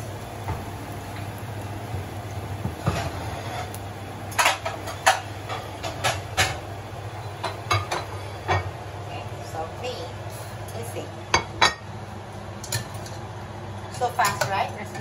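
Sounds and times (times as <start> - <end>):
gas burner rumble: 0.0 - 15.0
metal kitchenware clinking: 13.9 - 15.0.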